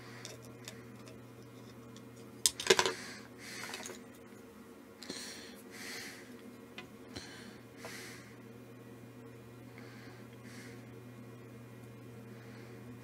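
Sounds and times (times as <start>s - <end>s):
faint steady hum: 0.0s - 13.0s
clatter of small hard objects: 2.5s - 3.0s
slow close breathing: 2.9s - 4.0s, 5.0s - 6.4s, 7.1s - 8.4s, 9.7s - 10.9s, 12.2s - 12.9s.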